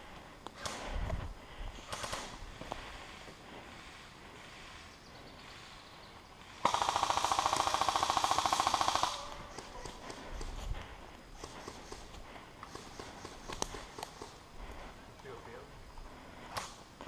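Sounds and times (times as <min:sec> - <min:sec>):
airsoft rifle full-auto burst: 0:06.5 - 0:10.1.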